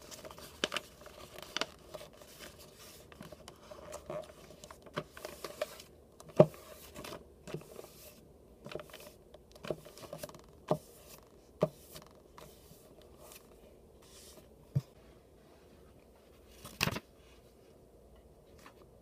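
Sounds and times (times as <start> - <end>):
paper rustling: 0.0 - 10.4.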